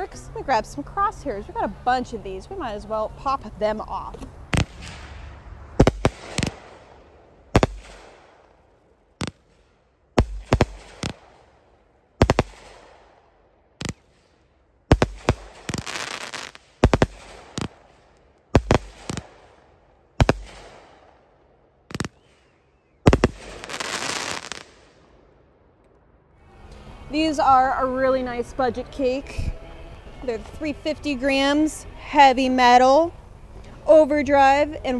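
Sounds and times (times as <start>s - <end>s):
fireworks crackling: 4.4s - 11.6s, 12.2s - 13.2s, 13.8s - 19.6s, 20.2s - 21.2s, 21.9s - 25.1s
firework shots: 4.4s - 25.2s.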